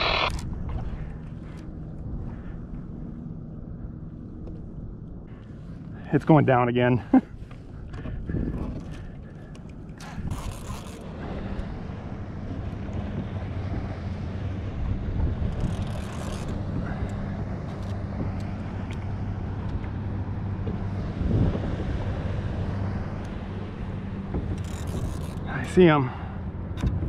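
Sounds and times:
wind rumbling on microphone: 0:00.0 - 0:05.9, 0:07.2 - 0:25.8
low motor hum: 0:00.0 - 0:27.0.

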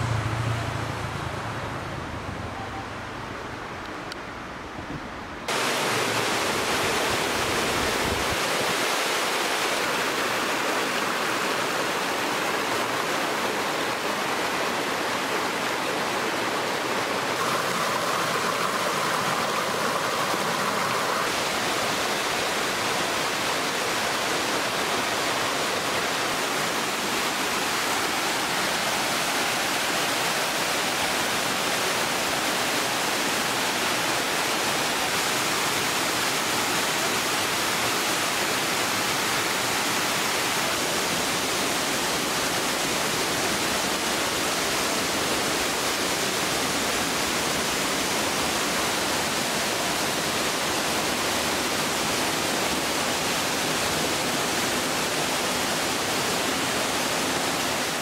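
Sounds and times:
stream rushing over rocks: 0:00.0 - 0:02.8, 0:03.4 - 0:58.0.

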